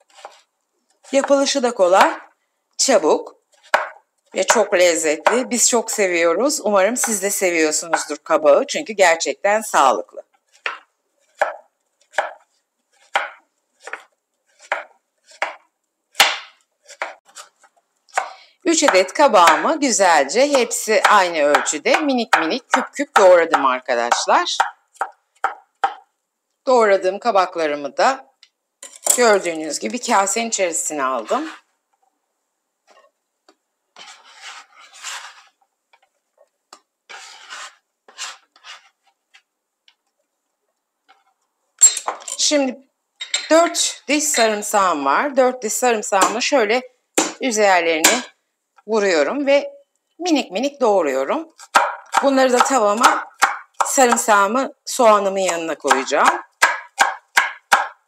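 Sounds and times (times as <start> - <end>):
knife chopping on wooden board: 3.6 - 4.6, 10.6 - 10.8, 11.4 - 12.4, 13.0 - 15.6, 16.2 - 17.4, 24.6 - 26.0, 51.7 - 54.2, 55.9 - 58.0
hands sweeping cubes across a board: 34.0 - 35.6, 37.1 - 39.4.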